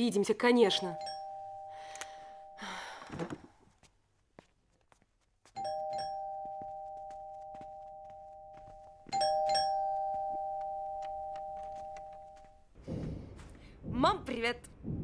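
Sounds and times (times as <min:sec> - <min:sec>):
two-note doorbell chime: 0:05.6 - 0:12.4.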